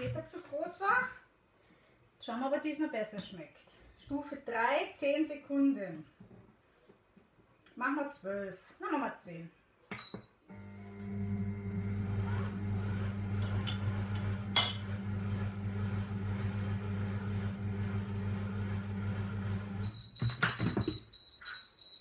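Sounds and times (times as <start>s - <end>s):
food processor motor humming: 10.5s - 19.9s.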